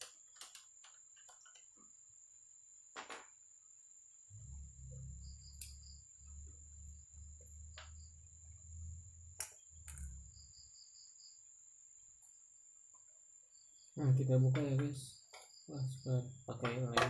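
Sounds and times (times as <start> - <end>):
insects chirping: 0.0 - 17.0
low rumble: 4.3 - 10.7
steady high whine: 4.3 - 10.8.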